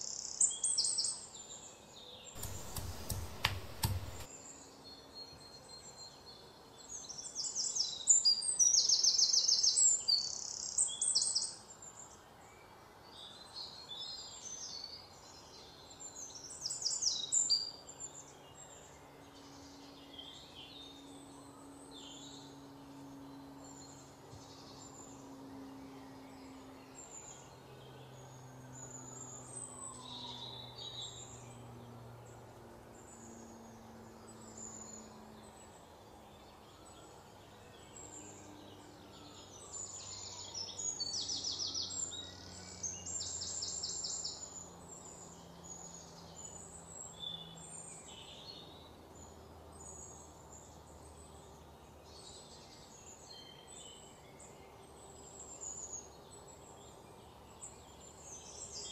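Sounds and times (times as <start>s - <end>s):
birds chirping and calling: 2.4s - 4.3s.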